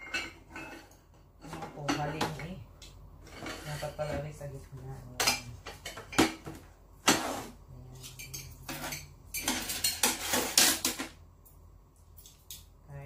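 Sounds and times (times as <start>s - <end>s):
tableware clattering: 0.0s - 2.5s, 3.2s - 4.2s, 5.2s - 11.2s.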